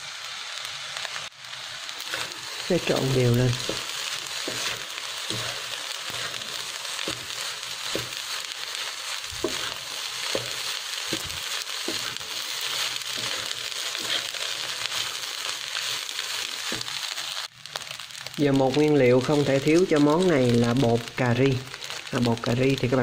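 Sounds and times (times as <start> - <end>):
rice sizzling in a pan: 0.0 - 23.0
wooden spatula scraping: 2.0 - 18.3.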